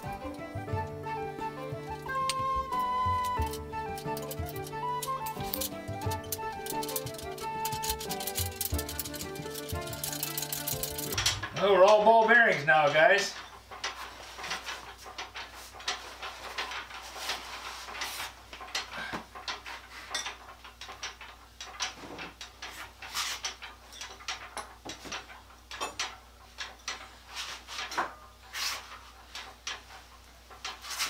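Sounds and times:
metal tools clinking on concrete: 2.0s - 14.6s, 23.5s - 27.1s.

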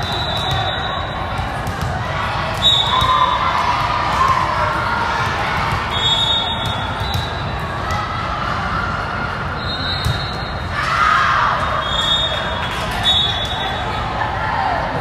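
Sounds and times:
volleyball hits echoing: 0.0s - 8.1s
crowd noise: 0.0s - 15.0s
spectator chatter: 0.0s - 15.0s.

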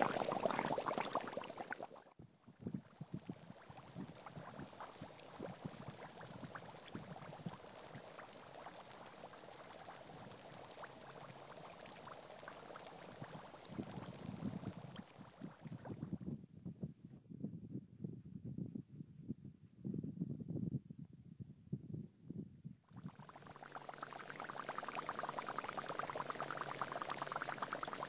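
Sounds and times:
air bubbles fizzing in sand: 0.0s - 16.2s, 22.9s - 28.0s.

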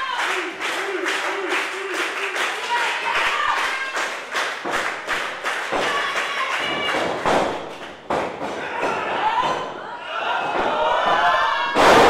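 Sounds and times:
scattered clapping: 0.0s - 9.0s
thuds on wrestling ring canvas: 6.7s - 9.7s
crowd shouting: 8.5s - 12.0s.

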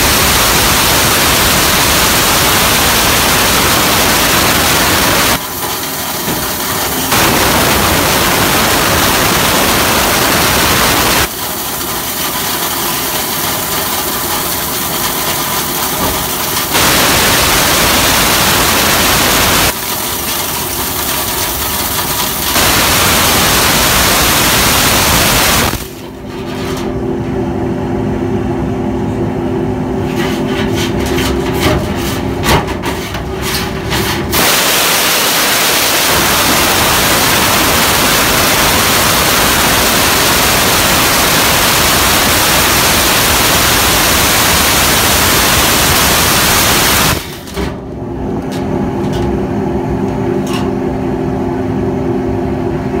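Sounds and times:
vacuum truck drone: 0.0s - 11.5s, 15.9s - 19.8s, 22.4s - 30.2s, 34.2s - 53.0s
compressed air rushing through hose: 0.0s - 11.9s, 22.2s - 26.0s, 34.0s - 47.4s.

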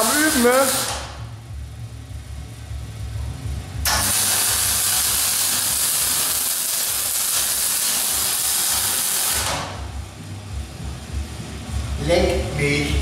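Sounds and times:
welding arc hissing and crackling: 0.0s - 1.3s, 3.8s - 10.0s
low rumble: 0.7s - 4.1s.

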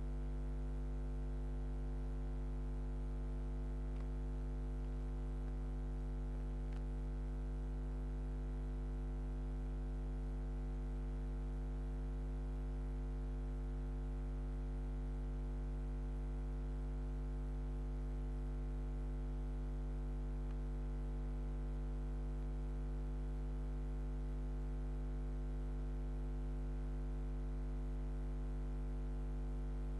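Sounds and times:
electrical hum: 0.8s - 8.7s
faint tick: 6.7s - 6.9s.

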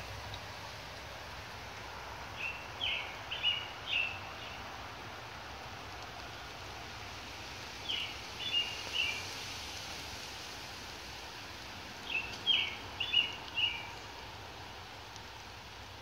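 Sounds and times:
rain hissing: 0.0s - 16.0s
songbird singing: 1.7s - 5.4s, 7.7s - 9.5s, 11.6s - 16.0s.

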